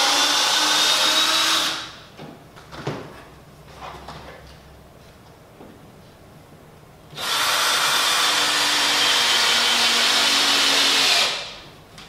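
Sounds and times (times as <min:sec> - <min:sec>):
power drill drilling into wood: 0:07.2 - 0:11.5.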